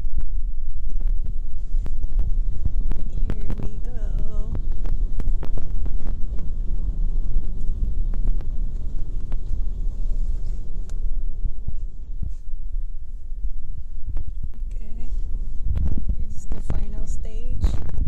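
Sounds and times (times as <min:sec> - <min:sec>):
car wash machinery rumble: 0:00.0 - 0:18.0
water spraying on car: 0:01.3 - 0:14.0.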